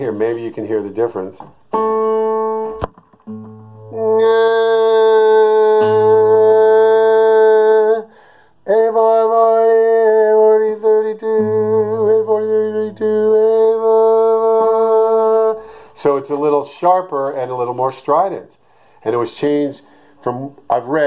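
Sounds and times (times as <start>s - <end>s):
classical guitar strings ringing: 1.7s - 4.2s
man singing a long steady note: 3.9s - 16.4s.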